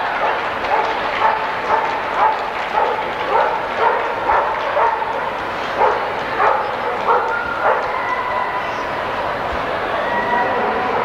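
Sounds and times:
murmur of crowd: 0.0 - 11.0
dog barking: 0.2 - 7.9.

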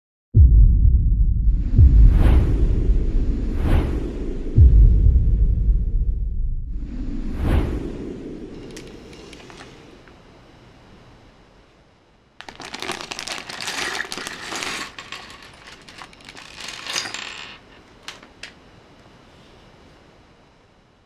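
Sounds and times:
plastic bag crinkling: 8.7 - 9.7, 12.4 - 18.6
plastic bricks clattering on wood: 12.4 - 18.6.

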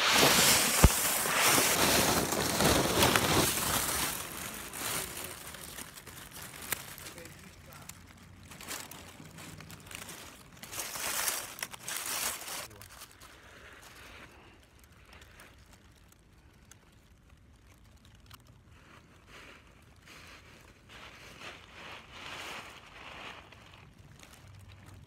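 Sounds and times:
dry leaves crackling and rustling: 0.0 - 25.0.

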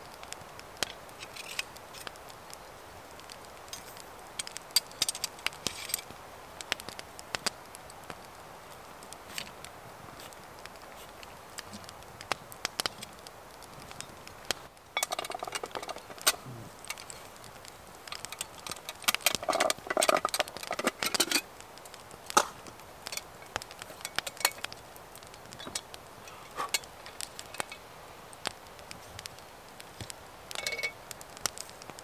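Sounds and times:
wood fire crackling and popping: 0.0 - 32.0
metallic clinks of cooking gear: 15.0 - 17.3, 18.0 - 21.5, 30.5 - 31.0.

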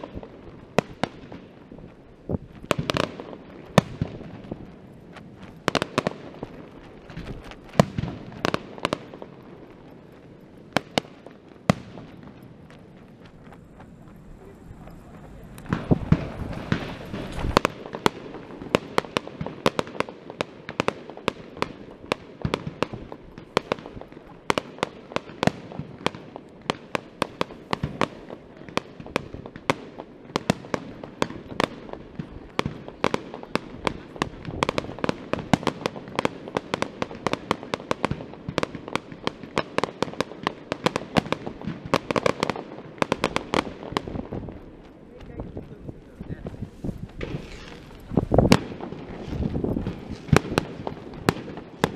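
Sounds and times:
fireworks bangs and crackles: 0.0 - 51.9
heavy low firework boom: 11.7 - 18.7.

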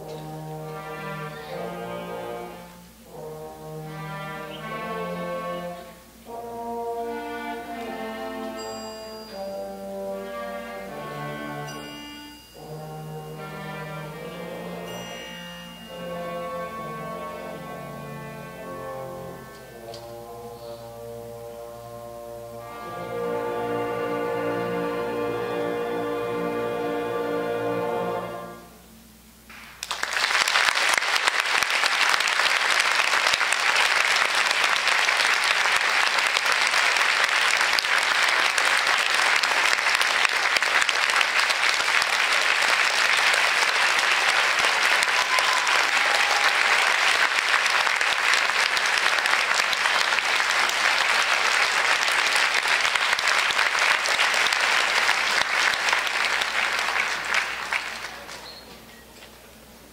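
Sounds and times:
band music: 0.0 - 28.8
audience applauding: 29.5 - 58.8.

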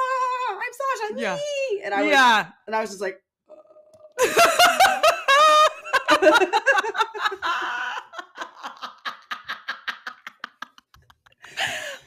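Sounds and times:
women laughing hard: 4.2 - 12.0.

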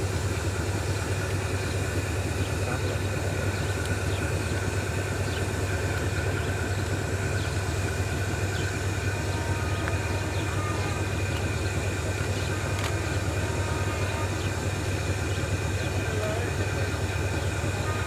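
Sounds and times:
locomotive engine idling: 0.0 - 18.0.

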